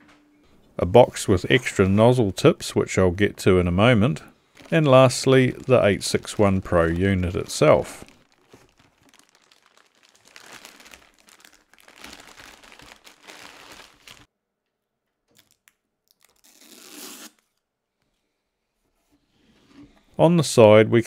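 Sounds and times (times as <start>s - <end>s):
plastic bag crinkling: 4.1s - 14.3s.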